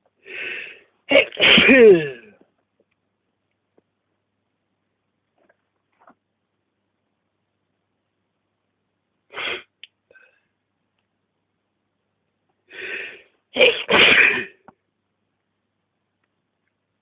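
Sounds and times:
person sneezing: 0.3s - 2.4s, 9.3s - 10.3s, 12.7s - 14.6s.

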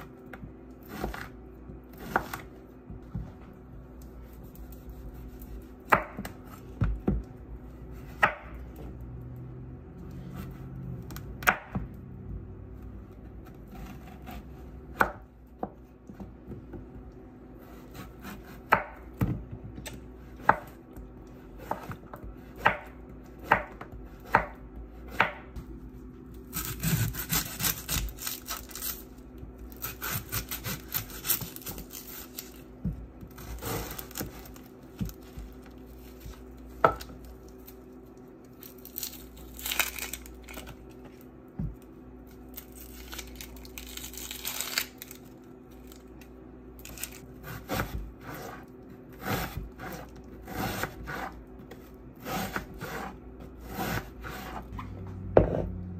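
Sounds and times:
knife chopping on wooden board: 0.8s - 3.3s, 5.2s - 7.3s, 8.1s - 8.6s, 13.4s - 16.9s, 17.7s - 25.7s, 29.8s - 32.2s, 47.4s - 48.6s, 49.2s - 54.7s, 55.3s - 55.8s
knife cutting onion crackling: 26.4s - 29.1s, 29.7s - 37.8s.

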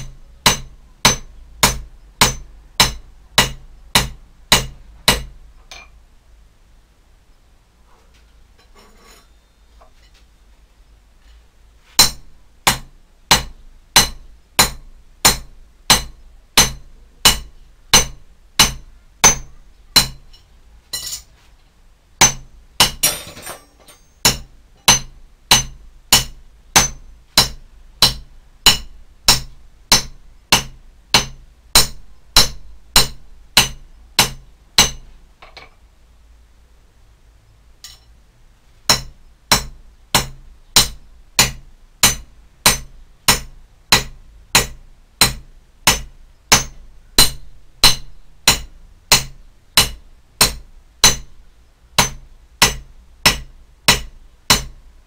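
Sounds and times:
hammer striking metal on anvil: 0.0s - 5.9s, 12.0s - 20.4s, 22.2s - 35.7s, 37.8s - 38.1s, 38.9s - 51.3s, 52.0s - 54.8s.

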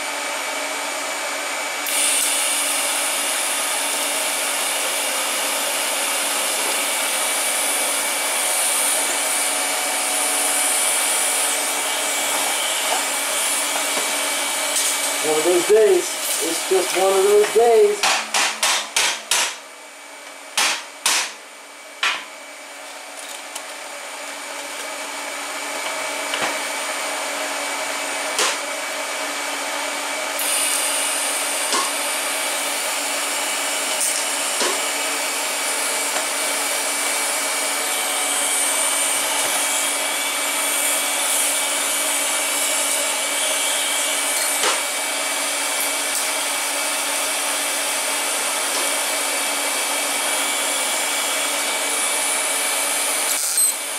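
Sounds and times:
welding arc hissing: 30.4s - 34.9s, 53.2s - 53.8s.

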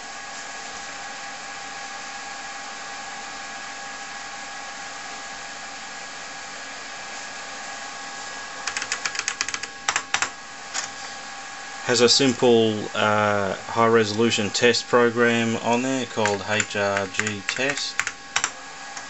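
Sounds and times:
computer whirring: 8.2s - 19.0s
keyboard keys clicking: 8.6s - 10.9s, 15.7s - 18.6s
floppy drive spinning: 11.9s - 19.0s.

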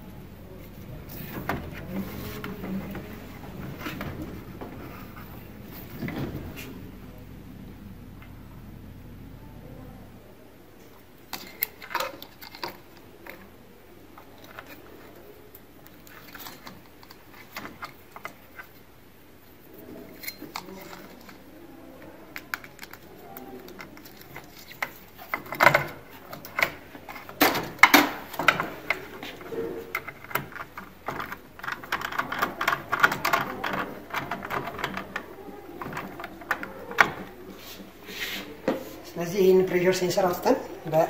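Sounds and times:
plastic parts clicking and knocking: 11.3s - 13.5s, 14.2s - 18.8s, 20.2s - 37.4s.

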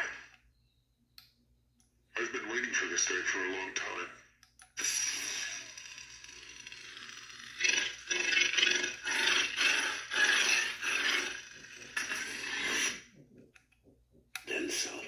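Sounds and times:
lightsaber hum: 4.8s - 13.8s.

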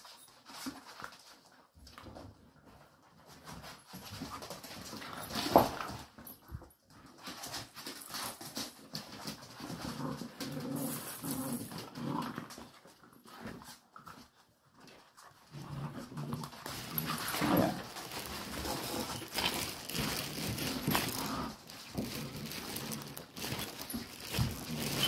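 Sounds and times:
puppies whining and panting: 22.5s - 25.0s.

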